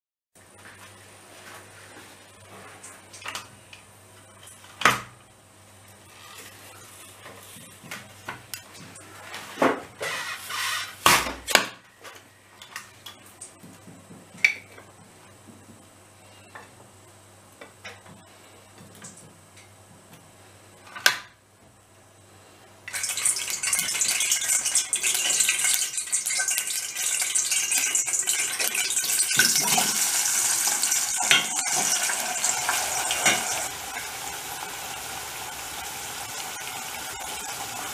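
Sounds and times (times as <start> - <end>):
potatoes sizzling in oil: 22.9 - 37.9.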